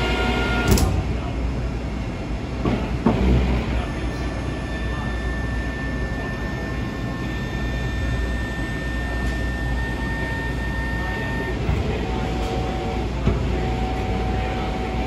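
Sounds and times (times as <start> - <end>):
folding machine humming: 0.0 - 1.3, 2.6 - 15.0
thin steady whine: 0.0 - 15.0.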